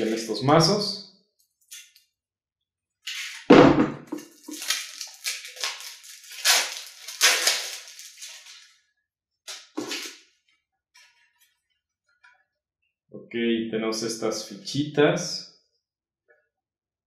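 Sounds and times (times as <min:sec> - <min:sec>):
shrink-wrap crinkling: 0:04.2 - 0:08.8, 0:09.5 - 0:10.2.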